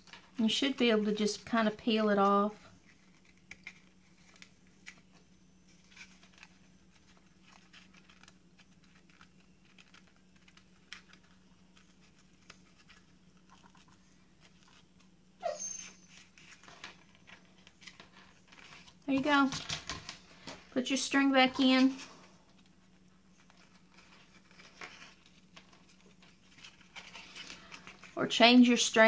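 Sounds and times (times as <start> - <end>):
fingers peeling paper: 2.8 - 15.1
brief squeak: 15.4 - 16.1.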